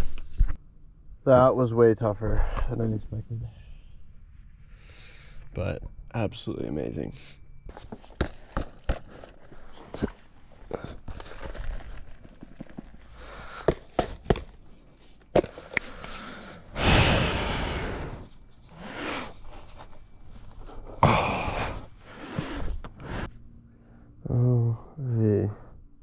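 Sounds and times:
rustling: 0:07.7 - 0:16.8, 0:18.2 - 0:21.0
shoes dropped on asphalt: 0:11.1 - 0:14.6
person sighing: 0:20.9 - 0:22.5.

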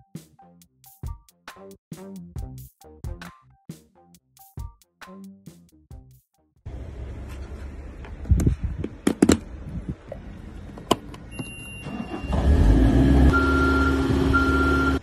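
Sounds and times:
electronic beep: 0:11.3 - 0:12.4
alarm tone: 0:13.3 - 0:15.0.

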